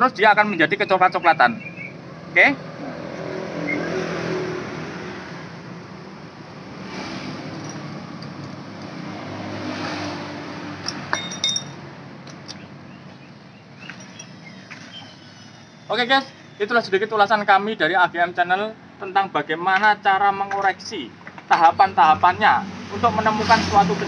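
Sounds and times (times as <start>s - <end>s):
passing traffic hum: 0.0s - 24.0s
metal wrench clinking: 7.5s - 8.9s, 10.8s - 12.6s.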